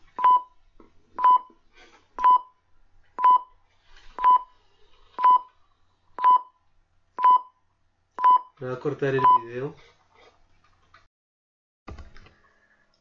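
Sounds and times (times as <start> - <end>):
electronic countdown beeps: 6.2 - 6.6, 7.2 - 7.6, 8.2 - 8.6.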